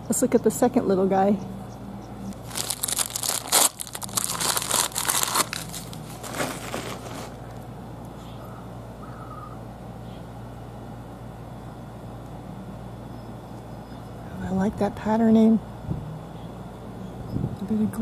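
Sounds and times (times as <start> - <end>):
packing wrap crinkling: 2.3 - 7.4.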